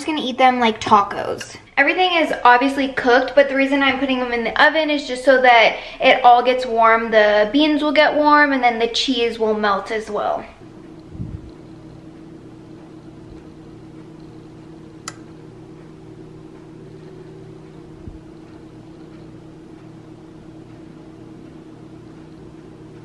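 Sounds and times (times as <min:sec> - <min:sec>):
kitchen appliance humming: 0:00.0 - 0:23.0
sharp click: 0:15.0 - 0:15.3.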